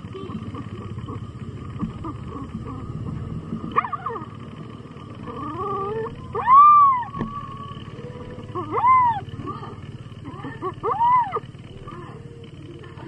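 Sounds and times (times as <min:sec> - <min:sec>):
puppy crying in high whines: 0:05.4 - 0:07.6, 0:08.5 - 0:09.3, 0:10.7 - 0:11.4.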